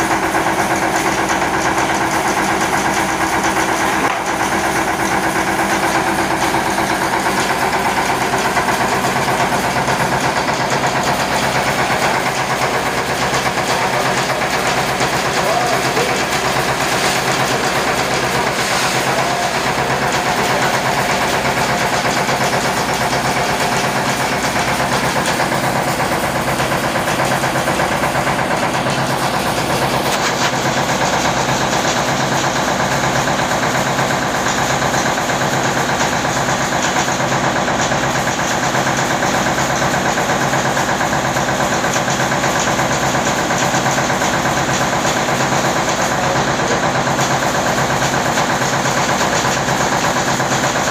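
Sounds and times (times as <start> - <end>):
diesel engine drone: 0.0 - 27.2
rice mill clatter: 0.0 - 50.9.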